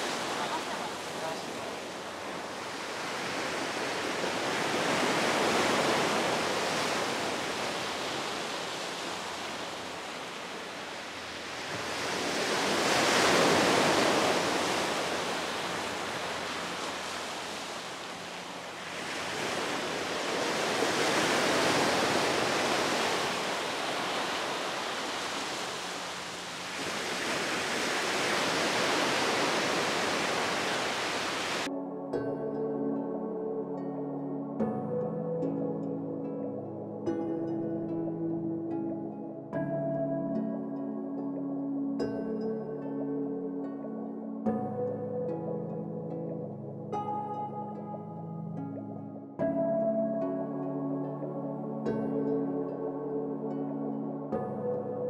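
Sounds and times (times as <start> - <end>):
sea surf on pebble beach: 0.0 - 31.7.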